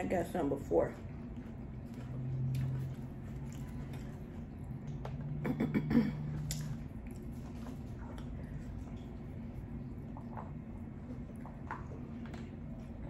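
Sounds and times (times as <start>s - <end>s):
crunchy taco chewing: 1.1s - 5.4s, 6.2s - 13.0s.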